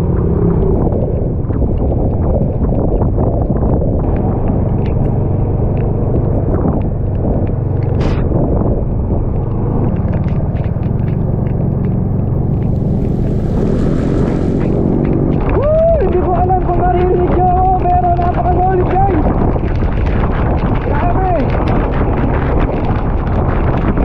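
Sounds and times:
motorcycle engine running: 0.0 - 24.0
wind and road noise: 0.0 - 24.0
sharp ticks: 0.1 - 24.0
brief hiss: 12.9 - 15.1.

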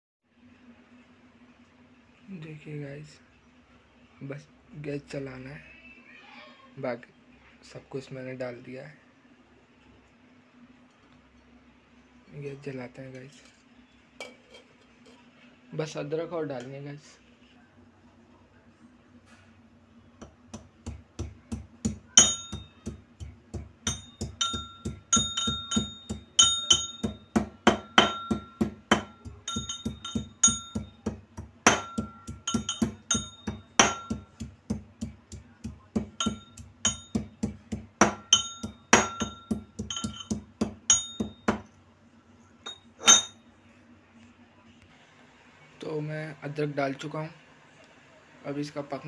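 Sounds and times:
metal pestle pounding in steel tumbler: 20.5 - 41.7.

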